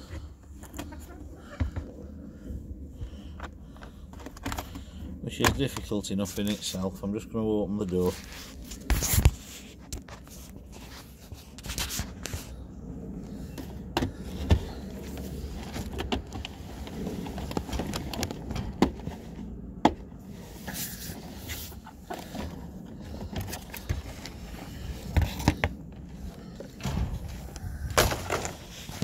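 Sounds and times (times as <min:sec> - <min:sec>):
plastic carrier scraping and rustling: 0:20.3 - 0:29.0.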